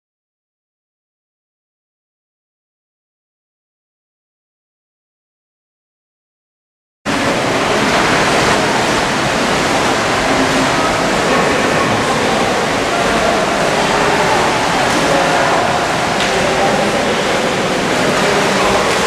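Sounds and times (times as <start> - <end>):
water splashing and lapping: 7.1 - 19.0.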